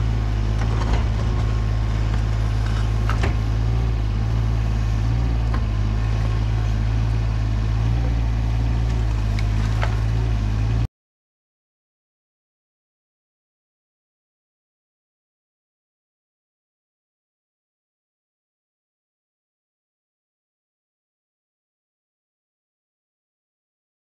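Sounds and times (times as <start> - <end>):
diesel engine running: 0.0 - 10.9.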